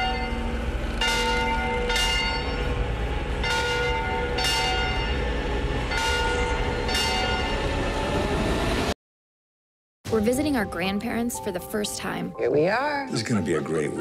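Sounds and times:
large bell clanging: 0.0s - 5.3s, 5.9s - 7.6s.

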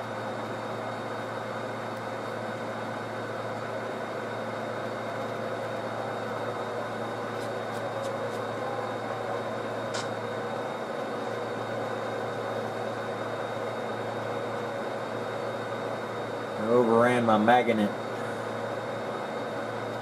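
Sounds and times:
model train droning: 0.0s - 20.0s.

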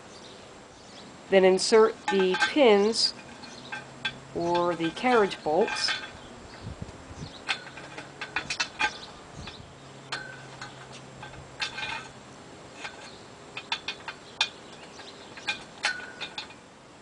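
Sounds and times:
steel pins clinking against metal: 1.5s - 6.7s, 7.3s - 16.7s.

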